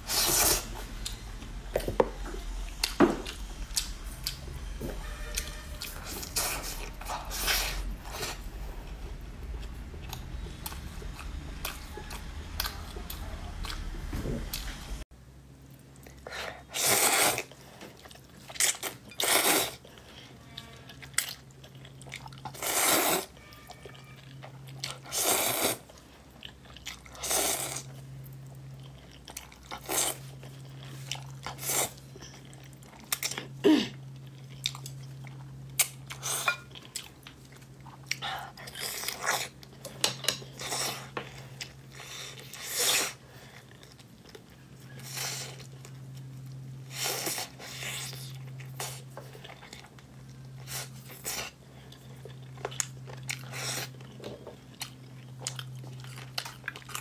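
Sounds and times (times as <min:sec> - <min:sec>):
chewing and lip smacks: 0:28.2 - 0:42.7, 0:47.4 - 0:57.0.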